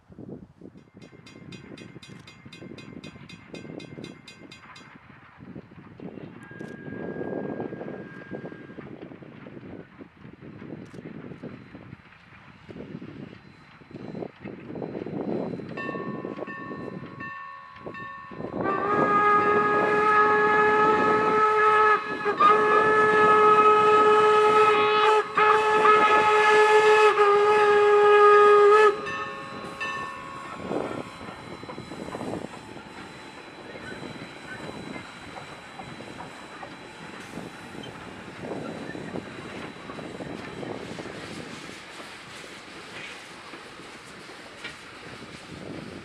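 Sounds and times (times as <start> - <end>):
faint high whistle: 6.4 - 8.8
steam locomotive whistle blasts: 6.5 - 8.8, 17.8 - 43.2.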